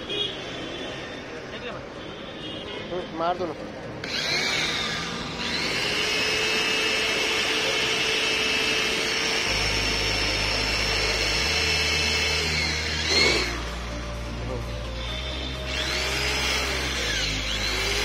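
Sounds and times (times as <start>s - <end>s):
electric drill whining: 4.0s - 14.0s, 14.9s - 18.0s.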